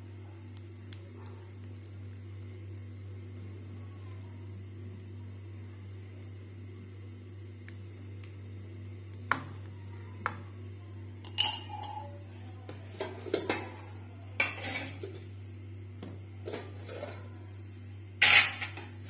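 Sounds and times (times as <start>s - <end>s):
metal spoon scraping steel plate: 14.4s - 15.2s.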